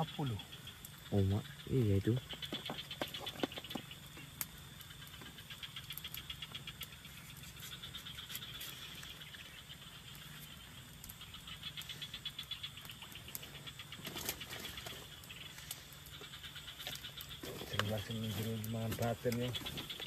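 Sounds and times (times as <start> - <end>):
frogs and insects calling: 0.0 - 20.0.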